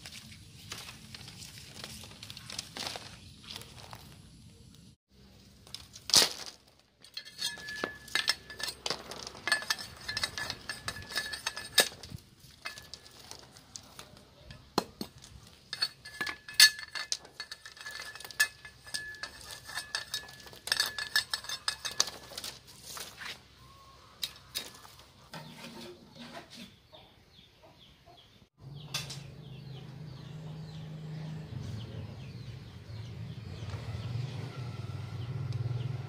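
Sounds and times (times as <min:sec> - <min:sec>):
cleaver splitting bamboo on concrete: 0:05.6 - 0:23.4.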